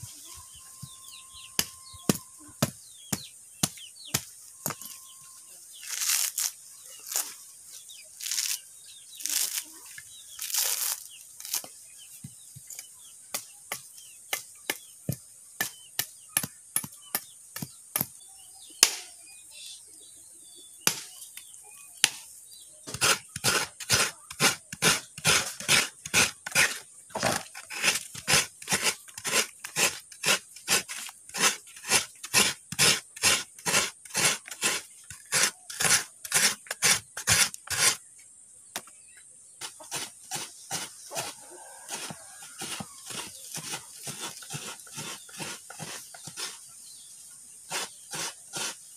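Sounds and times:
coconut grating on metal grater: 22.9 - 38.0, 41.9 - 46.6, 47.7 - 48.8.

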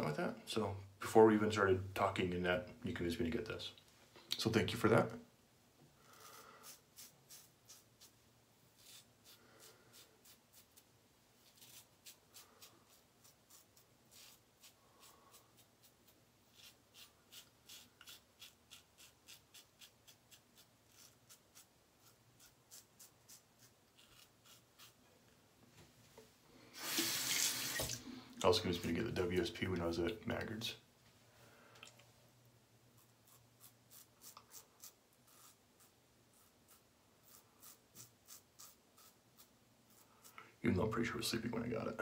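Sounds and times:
razor scraping stubble: 6.1 - 8.2, 8.8 - 25.0, 33.0 - 40.4.

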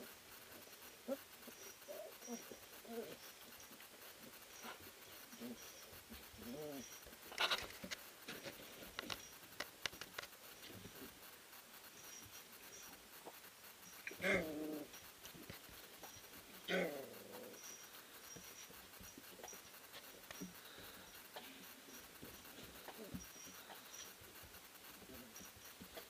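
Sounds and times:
puppy growls: 6.4 - 7.5, 14.1 - 15.0, 16.6 - 17.7.

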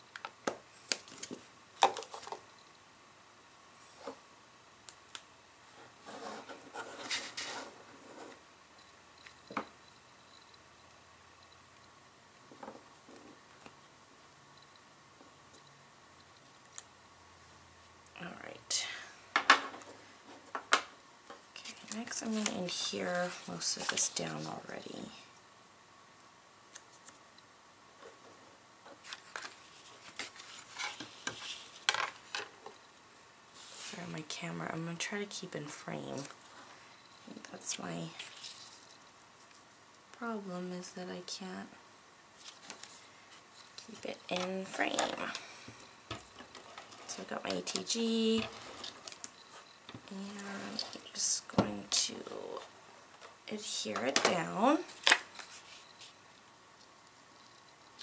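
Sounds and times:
acrylic block rustling and scraping: 28.0 - 32.8.

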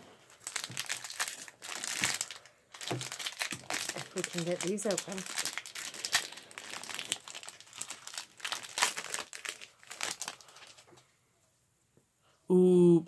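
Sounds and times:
foil wrapper crinkling: 0.3 - 10.9.

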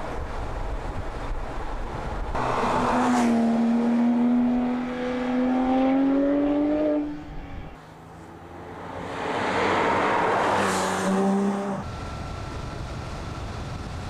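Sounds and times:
car engine accelerating past: 2.4 - 7.7.

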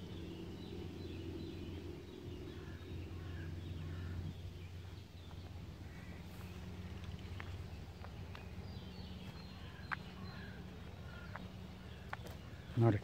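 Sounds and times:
low steady rumble: 0.0 - 13.0
small songbirds chirping: 0.0 - 13.0.

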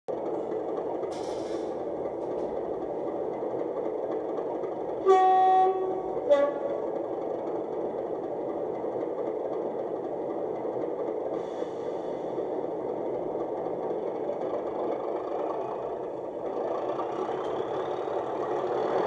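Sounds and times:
model locomotive engine sound: 0.1 - 19.0
two-tone horn: 5.0 - 6.8.

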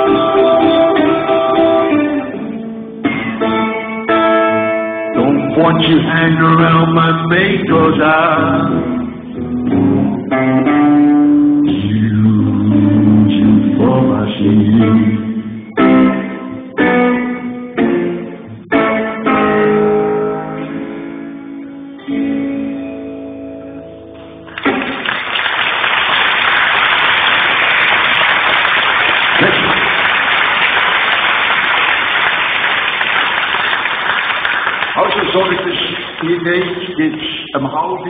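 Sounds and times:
electric guitar chords: 0.0 - 25.3
audience applause: 24.5 - 37.5.

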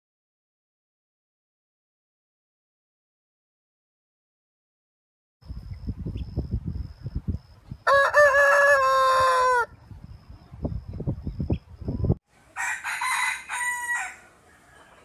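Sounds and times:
rooster crowing: 7.8 - 9.7, 12.5 - 15.0.

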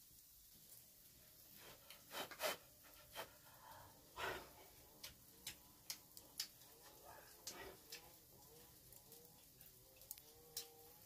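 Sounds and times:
breathy puffs from a person: 1.6 - 4.8.

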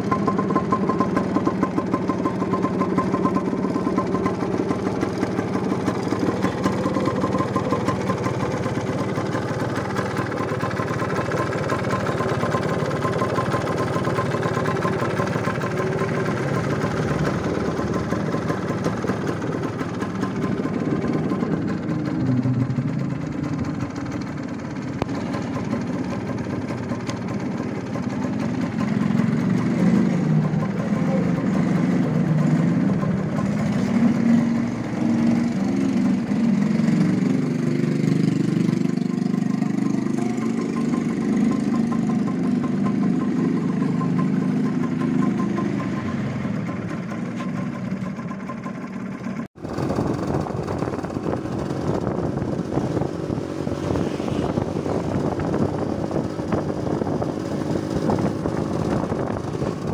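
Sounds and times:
motorcycle engine idling: 0.0 - 59.9
motorcycle engine running while riding: 0.0 - 59.9.

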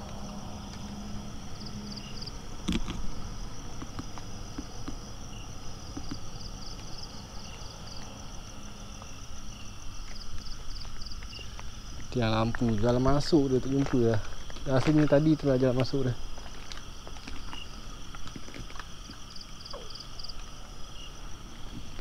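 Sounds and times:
low steady hum: 0.0 - 12.9
night insects chirping: 0.0 - 22.0.

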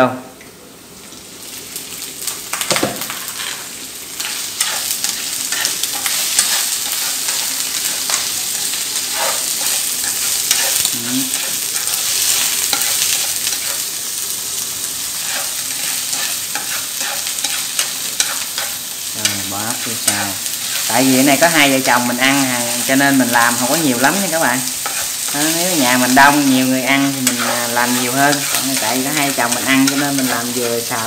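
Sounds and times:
snails sizzling in frying pan: 0.8 - 31.0
chopsticks and shells clicking on pan: 27.0 - 30.6.

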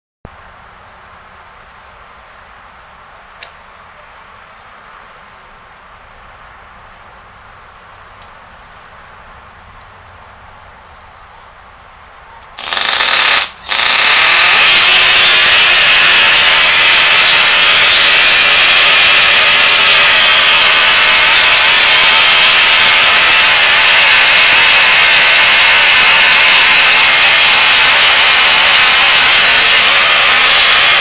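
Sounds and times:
electric starter spinning: 12.6 - 31.0
model boat engine running: 12.6 - 31.0.

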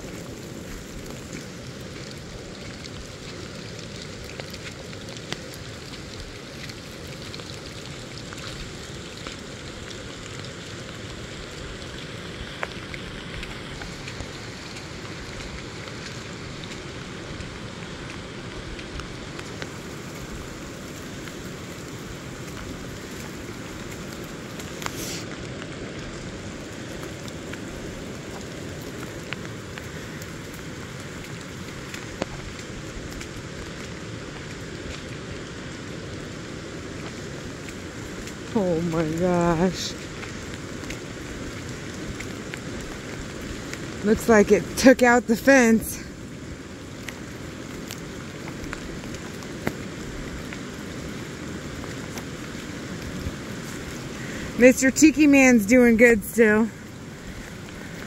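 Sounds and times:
river rushing: 45.7 - 54.7.

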